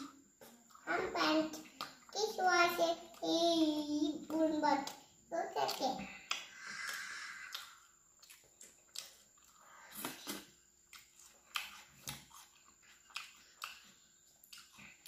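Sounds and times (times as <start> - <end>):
chewing and lip smacks: 5.7 - 15.0.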